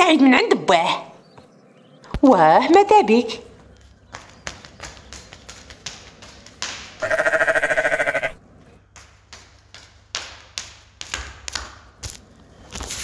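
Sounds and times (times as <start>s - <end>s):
sheep bleating: 7.0s - 8.4s.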